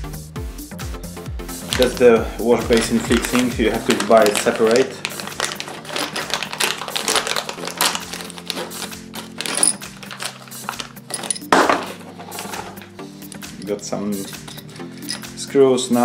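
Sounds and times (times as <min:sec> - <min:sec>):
plastic bag crinkling: 0:01.6 - 0:13.5, 0:14.2 - 0:15.3
metal screws clicking and rattling: 0:02.8 - 0:15.4.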